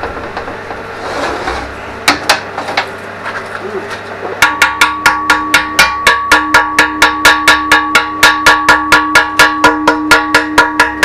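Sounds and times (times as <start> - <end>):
hammer striking steel: 4.4 - 11.0.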